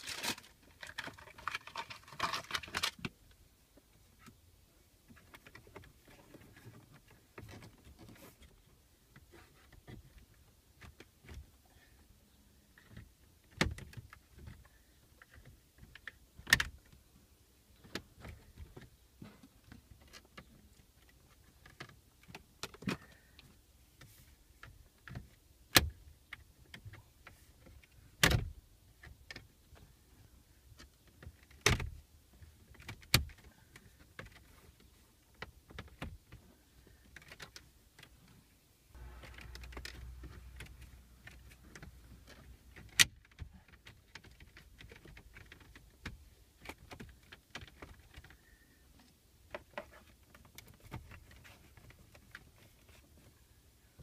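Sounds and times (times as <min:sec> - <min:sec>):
rustling: 0:00.0 - 0:03.4.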